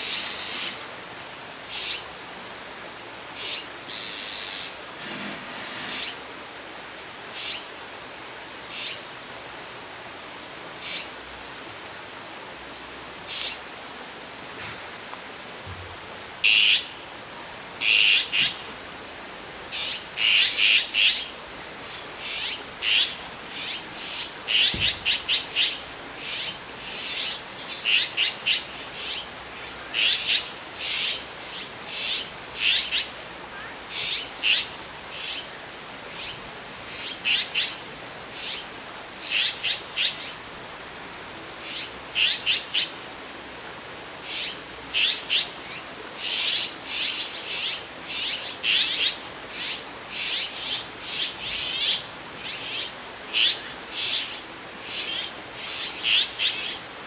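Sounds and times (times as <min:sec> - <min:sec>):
fledgling birds begging calls: 0:00.0 - 0:00.9, 0:03.4 - 0:06.3, 0:19.7 - 0:40.4, 0:41.6 - 0:43.0, 0:44.2 - 0:57.0.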